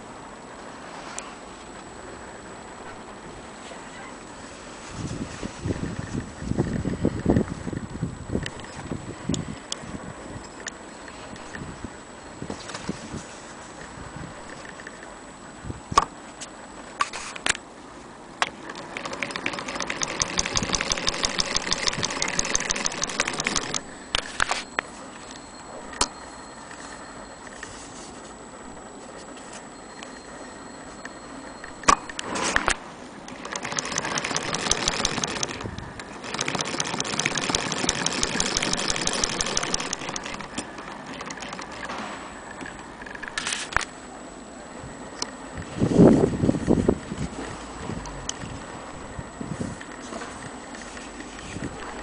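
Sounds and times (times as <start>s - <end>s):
sewing machine clicking: 18.4s - 24.6s, 31.8s - 43.4s.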